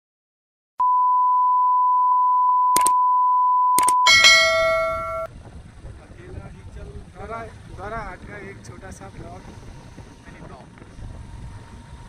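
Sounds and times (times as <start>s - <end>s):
steady beep tone: 0.8s - 5.3s
clicks: 3.8s - 5.1s
bell-like chime: 4.0s - 5.3s.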